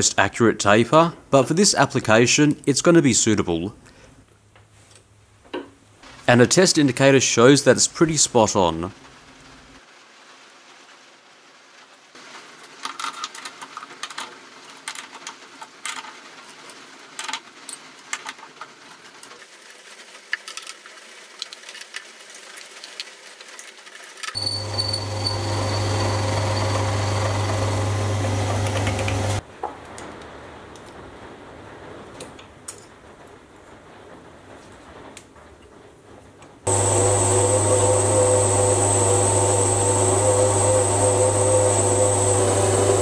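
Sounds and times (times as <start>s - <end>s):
lathe running with whine: 24.4s - 29.4s, 36.7s - 43.0s.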